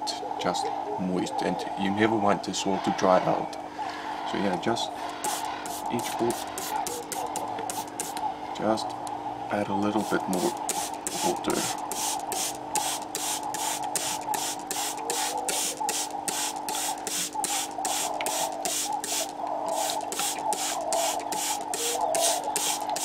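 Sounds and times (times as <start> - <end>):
spray bottle squirting: 5.2 - 8.2, 10.0 - 23.0.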